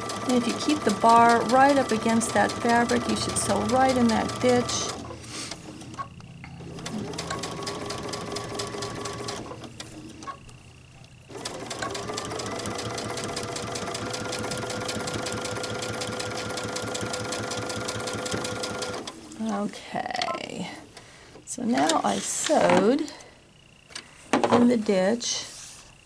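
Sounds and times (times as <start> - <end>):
sewing machine stitching: 0.0 - 5.2, 6.7 - 10.4, 11.3 - 19.2.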